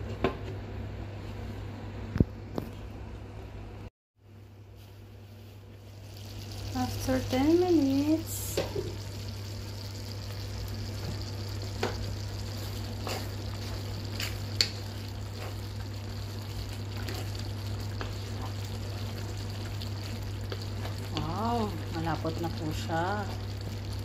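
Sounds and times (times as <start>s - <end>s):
steady low hum: 0.0s - 24.0s
sauce bubbling in a frying pan: 5.8s - 24.0s
wooden spatula stirring: 11.8s - 22.2s.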